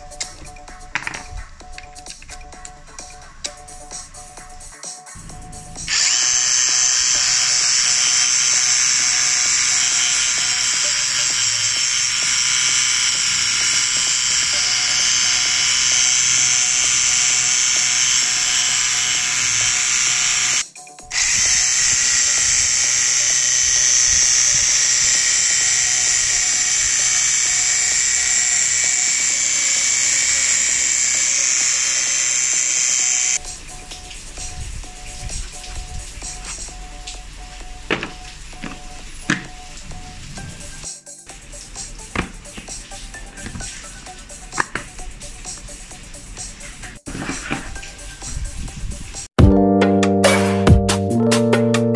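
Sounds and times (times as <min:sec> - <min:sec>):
drill motor whir: 0:05.2 - 0:33.5.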